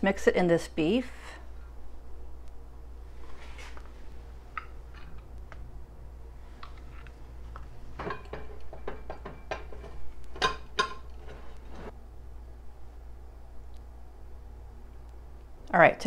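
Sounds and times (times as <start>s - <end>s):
spoon scraping and knocking a dish: 8.0s - 11.9s.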